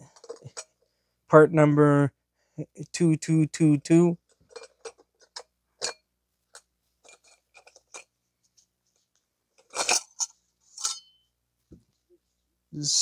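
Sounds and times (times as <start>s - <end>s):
metal parts clicking and clinking: 0.0s - 0.8s, 4.3s - 8.1s, 9.6s - 11.2s
metal scrape: 9.6s - 11.2s.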